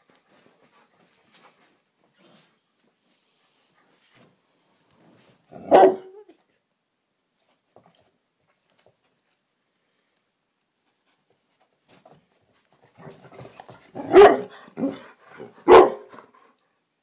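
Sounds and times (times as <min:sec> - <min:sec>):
dog barking: 0:05.5 - 0:06.2, 0:14.0 - 0:16.2.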